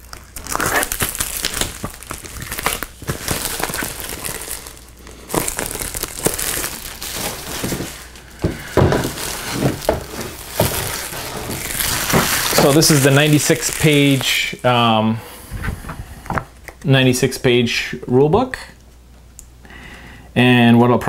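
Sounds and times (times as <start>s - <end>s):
plastic wrap crinkling: 0.0s - 14.8s.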